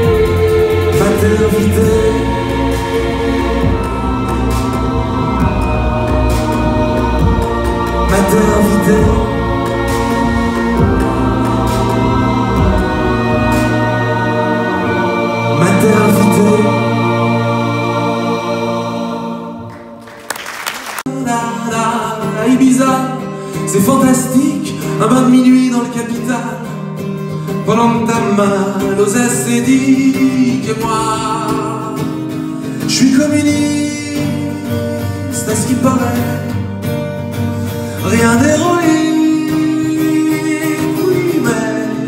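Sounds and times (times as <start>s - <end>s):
man singing: 0.0s - 18.1s, 21.1s - 26.9s, 27.5s - 36.7s, 38.0s - 42.0s
strummed acoustic guitar: 21.1s - 42.0s.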